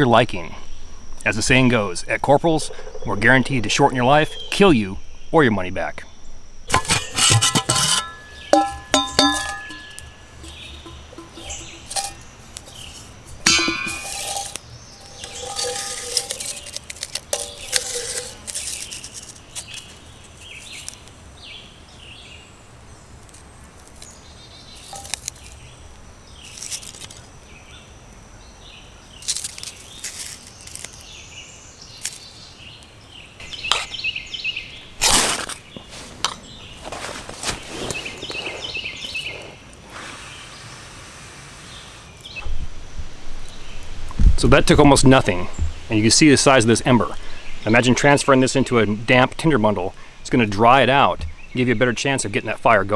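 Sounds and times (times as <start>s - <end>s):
birds chirping: 0.0s - 40.9s, 41.6s - 52.9s
metal container clinking: 6.7s - 19.4s, 24.8s - 25.5s
ferro rod scraping: 6.7s - 20.0s, 24.8s - 25.6s.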